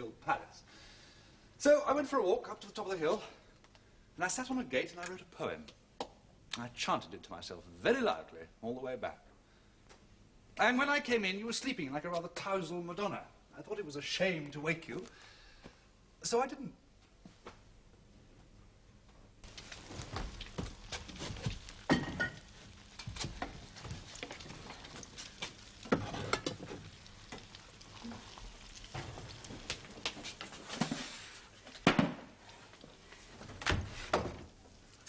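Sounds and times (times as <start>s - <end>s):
sausages sizzling in a pan: 19.4s - 31.6s
pan and utensils clattering: 21.8s - 24.8s, 25.8s - 27.4s.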